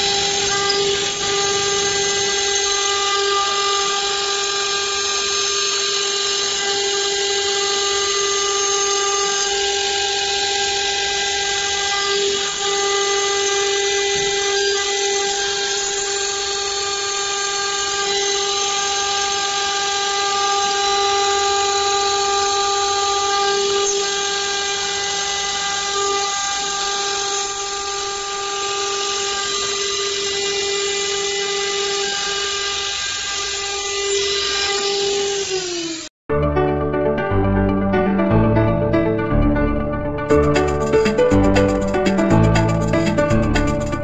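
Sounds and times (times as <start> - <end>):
end mill cutting metal hiss: 0.0 - 20.7
cnc spindle whine: 0.0 - 36.1.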